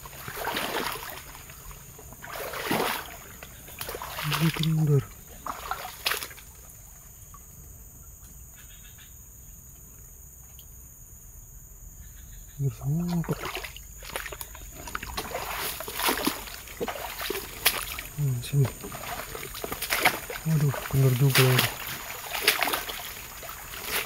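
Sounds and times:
insects buzzing: 0.0s - 24.0s
man speaking: 4.2s - 5.1s, 12.6s - 13.5s, 18.2s - 19.0s, 20.4s - 21.8s
rustling through undergrowth: 13.1s - 24.0s.

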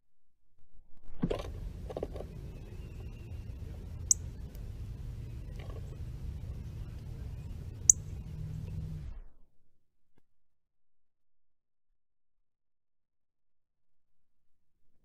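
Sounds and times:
steady low rumble: 1.4s - 9.2s.

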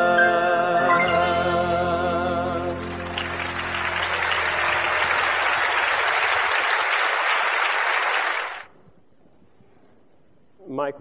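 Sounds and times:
held chord of worship song: 0.0s - 6.2s
congregation applauding: 2.7s - 8.8s.

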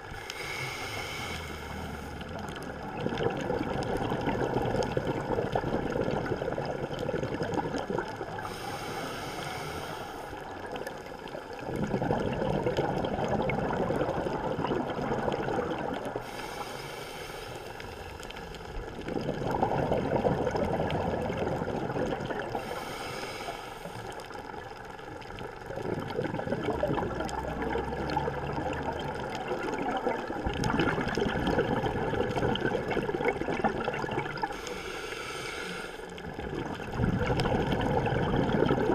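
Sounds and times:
bubbling exhaled air: 0.0s - 38.9s
regulator hissing inhalations: 0.2s - 2.1s, 8.4s - 10.4s, 16.2s - 18.1s, 22.6s - 24.1s, 34.5s - 36.1s.

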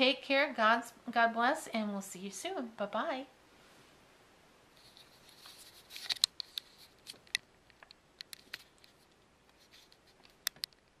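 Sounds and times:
handling rustle: 4.7s - 10.9s
sharp clicks and ticks: 10.2s - 10.8s.

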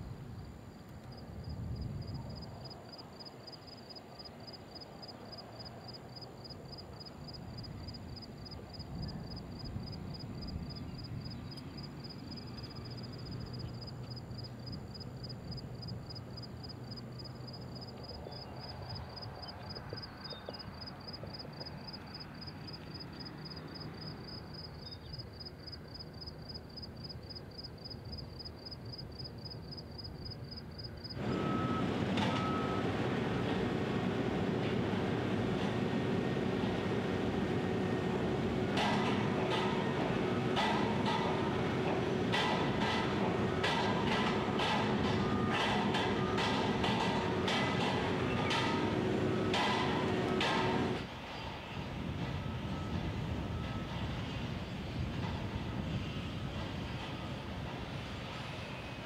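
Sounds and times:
insects chirping: 0.0s - 31.8s.

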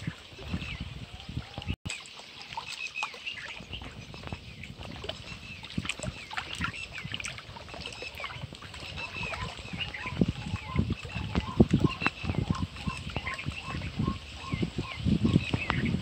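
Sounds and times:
small birds chirping: 0.0s - 16.0s
water lapping against rocks: 0.0s - 16.0s.

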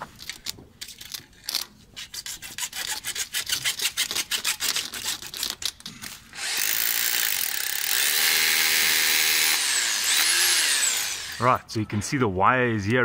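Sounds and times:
hammer drill drilling into brick: 6.3s - 11.5s.

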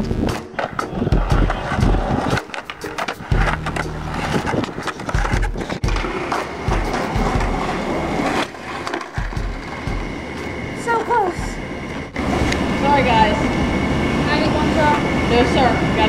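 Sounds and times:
skateboard clacking: 0.3s - 11.4s
skateboard wheels rolling on concrete: 0.3s - 16.0s.

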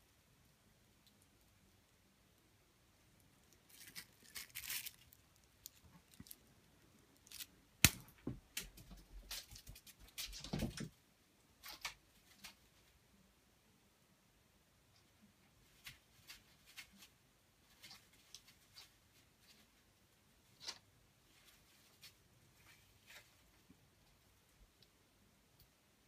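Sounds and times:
crinkle ball crinkling: 2.3s - 10.5s.

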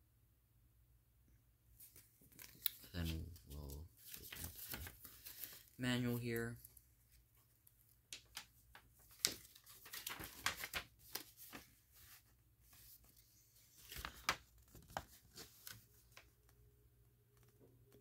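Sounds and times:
paper rustling and crinkling: 1.8s - 7.5s, 8.1s - 16.6s.

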